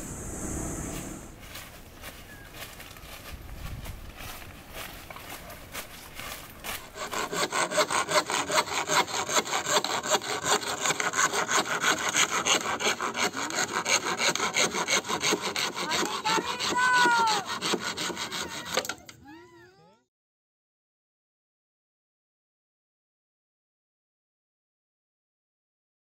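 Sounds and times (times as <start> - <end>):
sawing through wood: 6.6 - 19.1.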